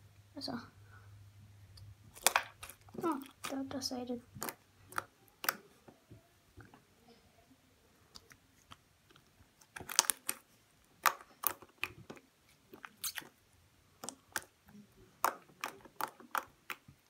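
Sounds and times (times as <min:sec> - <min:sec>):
slime clicking and popping: 0:02.1 - 0:03.6, 0:04.4 - 0:05.7, 0:08.1 - 0:13.4, 0:14.0 - 0:17.0.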